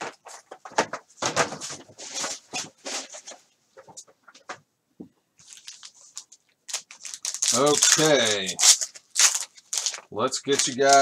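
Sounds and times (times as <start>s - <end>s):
foil wrappers crinkling and ripping: 5.4s - 11.0s.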